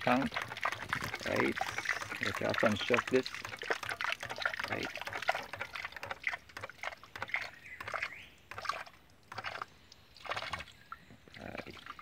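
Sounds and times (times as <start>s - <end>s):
water spurting and splashing: 0.0s - 12.0s.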